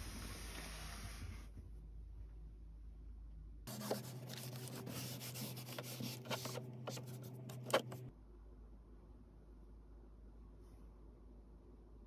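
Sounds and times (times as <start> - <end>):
tissue wiping dusty surfaces: 3.7 - 7.2.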